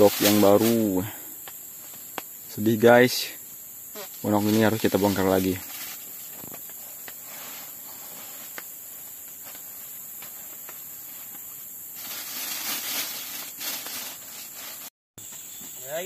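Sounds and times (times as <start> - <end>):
rustling: 0.0 - 1.1, 4.0 - 14.9
forest insects droning: 0.0 - 16.0.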